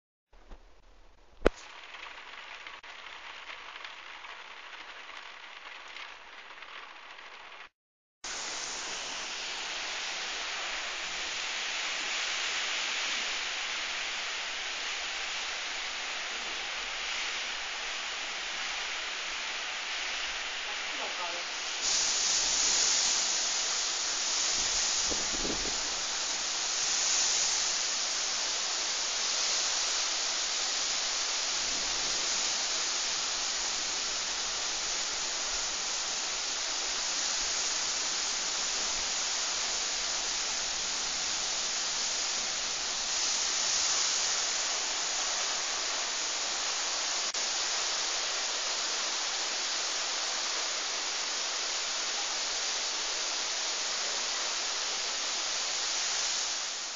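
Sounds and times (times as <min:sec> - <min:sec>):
heavy rain pouring: 0:08.3 - 0:56.9
gusty storm wind: 0:20.0 - 0:26.9.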